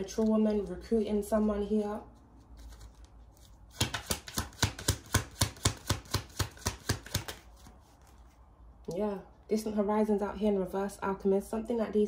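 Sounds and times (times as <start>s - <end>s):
cards being shuffled: 0.0s - 1.0s, 2.1s - 8.9s.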